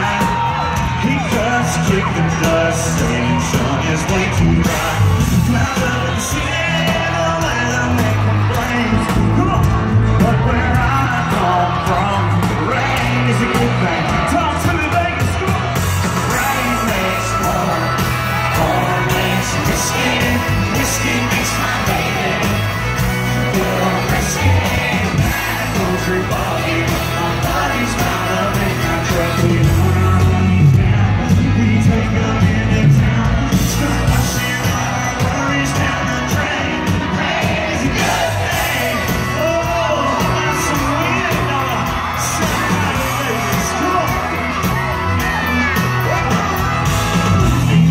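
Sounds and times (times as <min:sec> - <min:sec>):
country band playing: 0:00.0 - 0:47.9
crowd yelling and singing along: 0:00.0 - 0:47.9
drums: 0:00.0 - 0:47.9
lead singer singing: 0:00.0 - 0:47.9.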